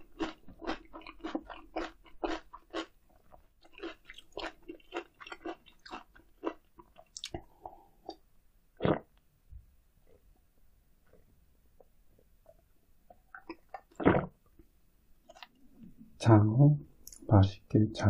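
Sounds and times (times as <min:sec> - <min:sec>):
crunchy chewing: 0:00.0 - 0:07.5, 0:15.2 - 0:15.6.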